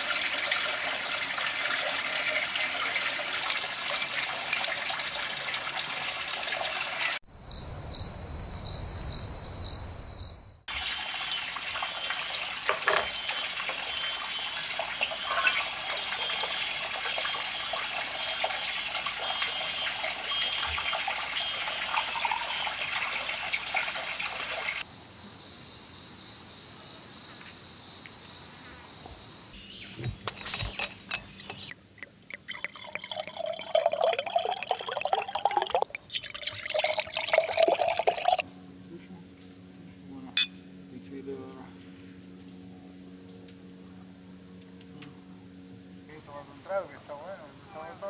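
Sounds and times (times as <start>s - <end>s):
cricket chirping: 7.2s - 10.7s, 24.8s - 31.8s, 42.5s - 43.6s, 46.0s - 48.0s
dense outdoor hiss: 24.4s - 48.0s.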